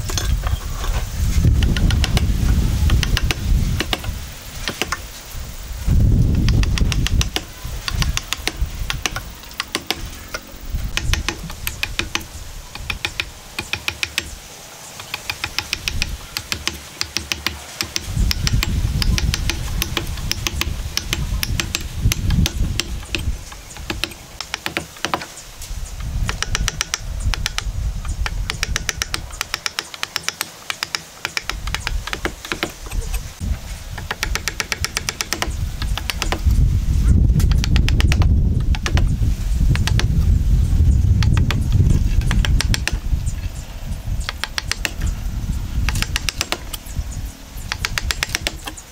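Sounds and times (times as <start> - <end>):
wood chisel cutting wood: 0.0 - 5.1, 6.3 - 36.6, 37.4 - 40.2, 41.2 - 43.5, 44.2 - 45.1, 45.8 - 46.9, 47.6 - 48.9.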